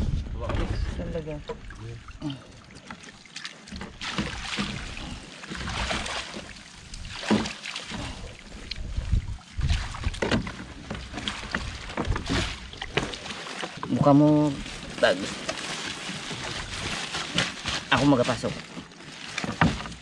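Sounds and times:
water splashing and dripping: 1.2s - 20.0s
net knocks and rustles: 14.8s - 20.0s.

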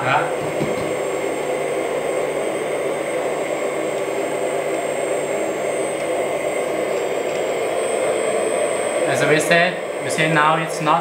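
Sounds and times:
hydraulic pump whirring: 0.0s - 11.0s.

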